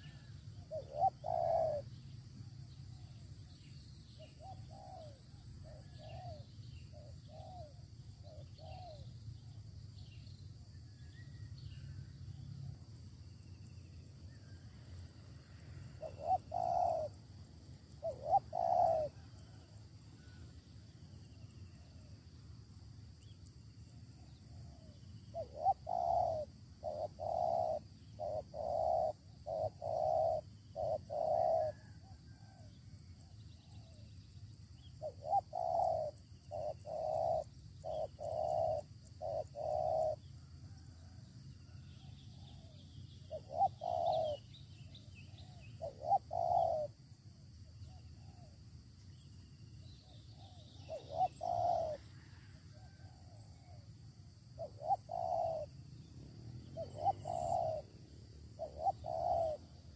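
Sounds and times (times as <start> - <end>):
dove cooing: 0.0 - 2.0, 4.1 - 9.1, 15.9 - 20.4, 24.2 - 32.8, 35.0 - 41.2, 42.0 - 47.1, 47.8 - 48.5, 50.0 - 53.9, 54.5 - 59.9
small birds chirping: 0.0 - 12.0, 16.0 - 19.6, 24.2 - 32.6, 33.2 - 41.2, 42.0 - 47.0, 47.7 - 52.1, 54.6 - 59.9.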